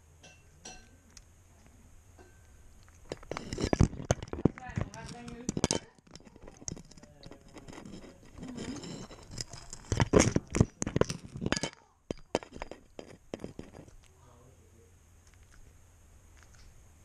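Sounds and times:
camera clinking on metal bowl: 2.8 - 14.1
cat crunching kibble: 16.4 - 16.7.

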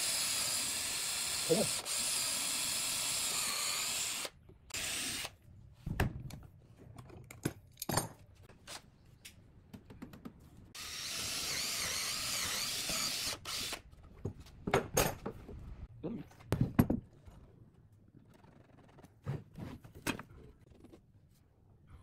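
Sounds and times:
electric drill boring into wood: 0.0 - 5.3, 10.8 - 13.8.

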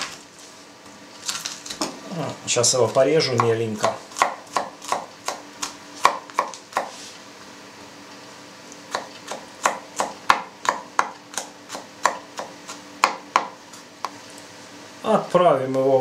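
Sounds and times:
knife chopping on wooden board: 3.3 - 7.0, 8.9 - 14.2.

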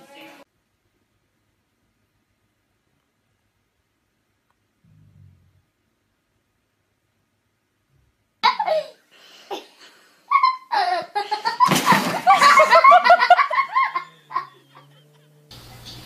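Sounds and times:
person laughing hard: 10.3 - 15.2.

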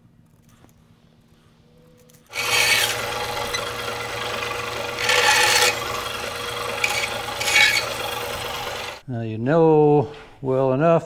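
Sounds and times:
bandsaw blade rasping through wood: 2.3 - 9.0
bandsaw running: 2.3 - 9.0.

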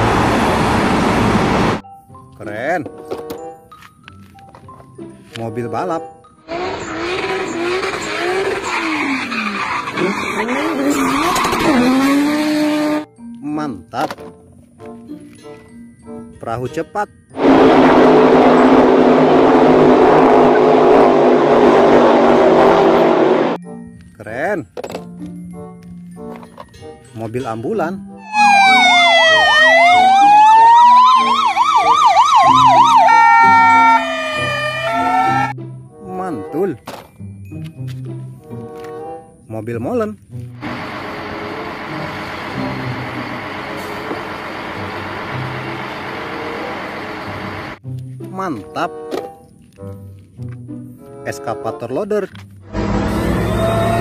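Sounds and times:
car engine revving: 0.0 - 1.8, 6.4 - 13.1, 17.4 - 23.6, 40.6 - 47.8, 52.6 - 54.0
tyres screeching: 6.5 - 13.0, 32.6 - 35.6
ambulance sirens: 28.2 - 35.6, 40.6 - 47.8, 52.8 - 54.0.

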